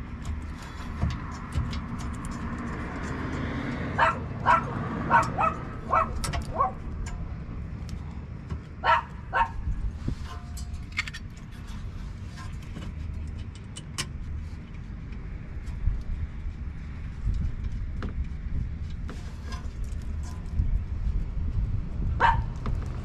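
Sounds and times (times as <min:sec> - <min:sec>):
dog barking: 0:04.0 - 0:06.8, 0:08.8 - 0:09.6, 0:22.2 - 0:22.5
metal clicks of brake parts: 0:10.2 - 0:11.7, 0:12.4 - 0:15.2.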